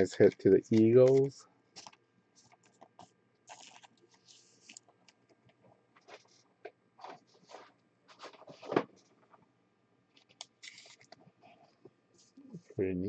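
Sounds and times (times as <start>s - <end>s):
soft plastic rustling: 0.1s - 9.5s
card scraping into sleeve: 10.6s - 11.0s.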